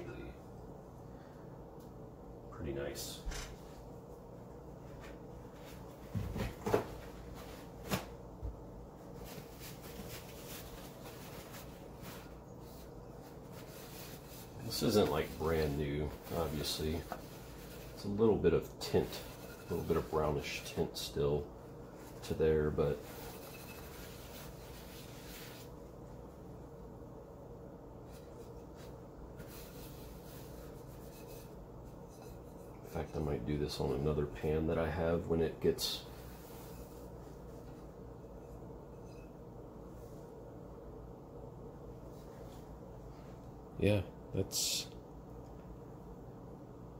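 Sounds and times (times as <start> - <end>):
faint steady hum: 0.0 - 46.9
paper towel wiping frying pan: 9.2 - 21.1, 21.9 - 25.8, 28.1 - 34.1, 36.0 - 39.2.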